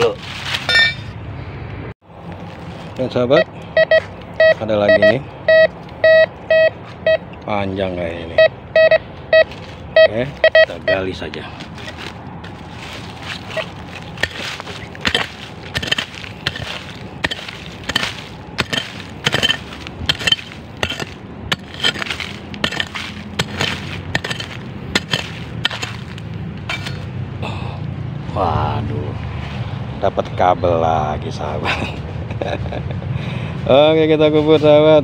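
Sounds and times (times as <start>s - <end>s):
hand hoe striking soil: 11.7s - 27.1s.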